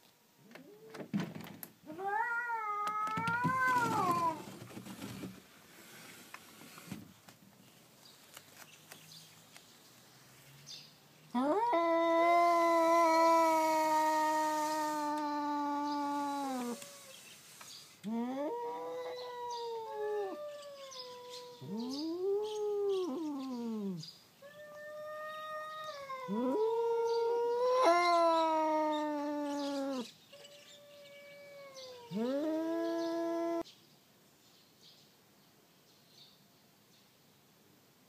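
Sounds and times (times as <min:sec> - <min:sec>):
cats yowling: 0:01.9 - 0:04.5, 0:11.4 - 0:17.2, 0:18.1 - 0:33.6.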